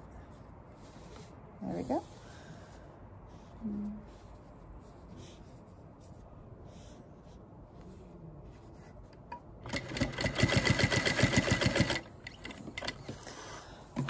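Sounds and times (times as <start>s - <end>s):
soft fabric handling: 0.0s - 9.5s
sewing machine stitching: 9.6s - 13.0s.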